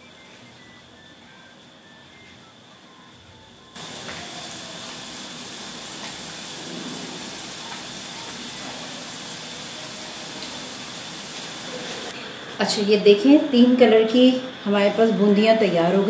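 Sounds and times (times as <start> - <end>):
batter sizzling in hot oil: 3.8 - 12.2.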